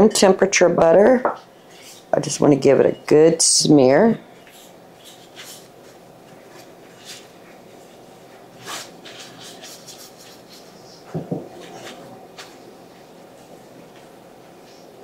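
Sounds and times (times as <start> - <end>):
paper towel wiping skillet: 8.5 - 12.1.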